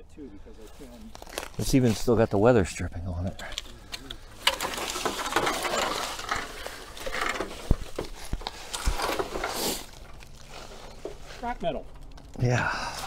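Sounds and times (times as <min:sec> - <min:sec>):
crunching in dry leaves: 0:00.6 - 0:02.1, 0:03.6 - 0:11.5.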